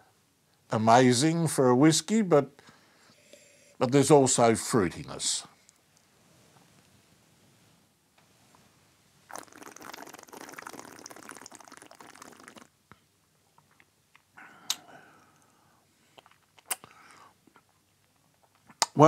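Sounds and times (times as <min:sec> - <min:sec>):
liquid swished in mouth: 0:09.3 - 0:12.7
lip smack: 0:13.7 - 0:14.9, 0:16.2 - 0:17.6, 0:18.6 - 0:19.0
short breath out: 0:14.4 - 0:15.8, 0:16.7 - 0:17.4.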